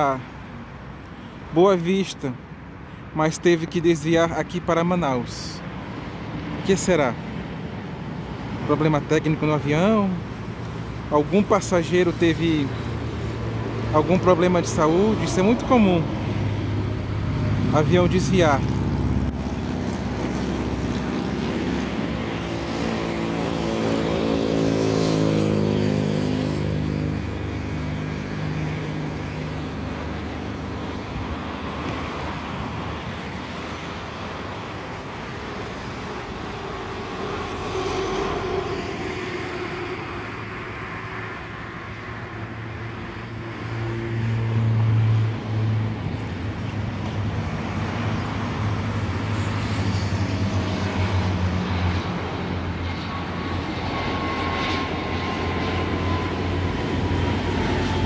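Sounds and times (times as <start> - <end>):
traffic hum: 0.0 - 58.0
jet airliner approaching: 5.2 - 58.0
vehicle passing: 12.0 - 34.7, 35.4 - 58.0.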